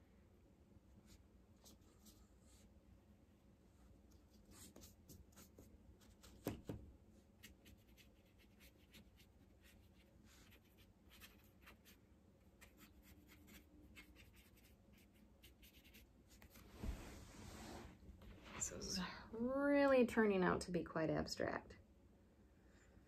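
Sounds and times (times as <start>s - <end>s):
brush scratching on paper: 7.4s - 12.0s, 12.6s - 16.6s.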